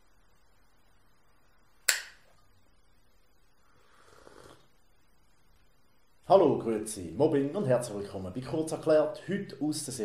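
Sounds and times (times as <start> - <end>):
hand snap: 1.8 - 2.3.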